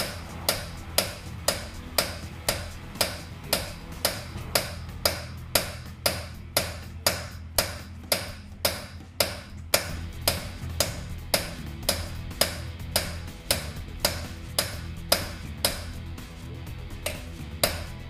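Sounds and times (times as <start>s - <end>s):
hammer striking metal socket: 0.0s - 16.0s, 17.0s - 18.0s.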